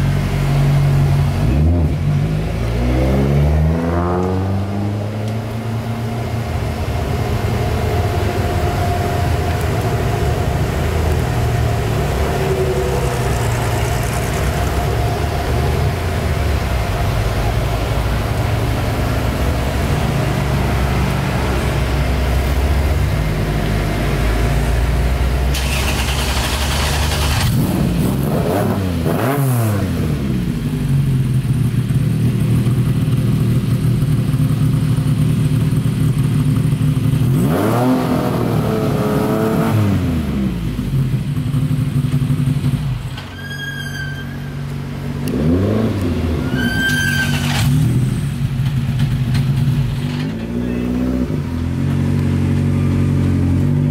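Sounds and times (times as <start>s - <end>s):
car engine revving: 0.0s - 43.0s, 44.8s - 53.9s.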